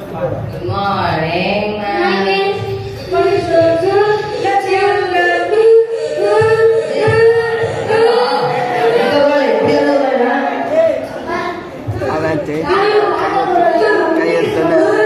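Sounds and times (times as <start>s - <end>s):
young voice singing into microphone: 1.9s - 12.0s.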